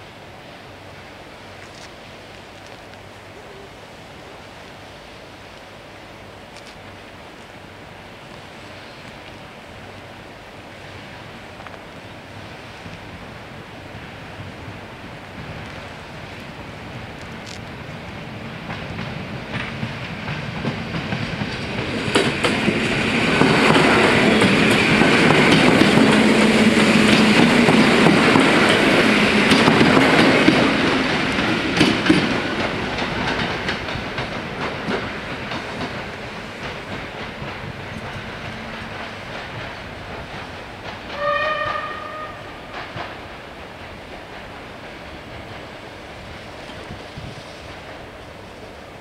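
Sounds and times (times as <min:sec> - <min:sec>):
train wheels clacking on rails: 0:11.5 - 0:49.0.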